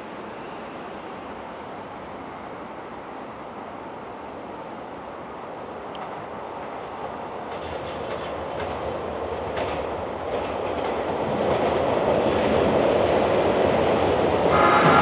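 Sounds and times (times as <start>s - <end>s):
train wheels rumbling on rails: 0.0s - 15.0s
wheels clicking over rail joints: 5.8s - 13.1s.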